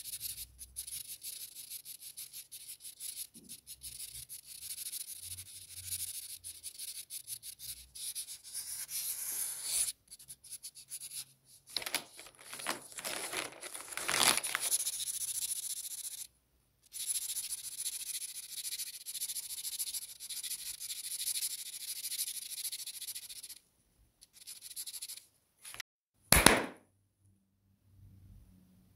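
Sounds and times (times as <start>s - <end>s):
marker scribbling on paper: 0.0s - 11.3s, 14.6s - 16.3s, 16.9s - 23.6s, 24.2s - 25.2s.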